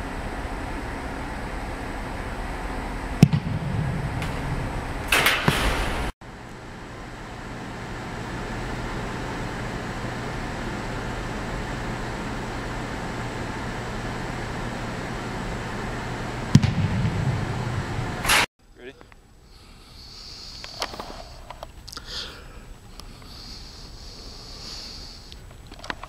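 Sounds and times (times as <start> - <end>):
ventilation hum: 0.0 - 26.0
noisy clatter: 3.2 - 6.1, 16.5 - 18.5
football kick thud: 16.6 - 17.5.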